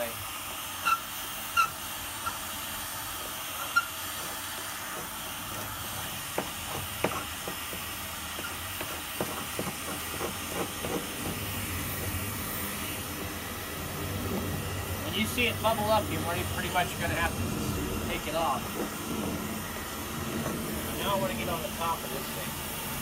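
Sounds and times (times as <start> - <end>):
heat gun blowing hot air: 0.0 - 23.0
paint scraper scraping: 5.0 - 12.8, 14.0 - 21.6.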